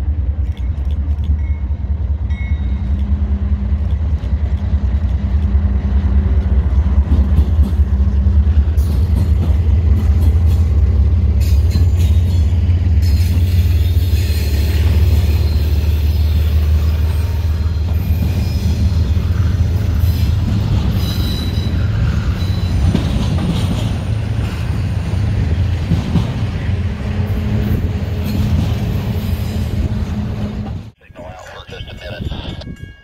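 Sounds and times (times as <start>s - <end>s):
diesel locomotives rumbling: 0.0s - 33.0s
train wheels squealing on rails: 8.6s - 25.2s.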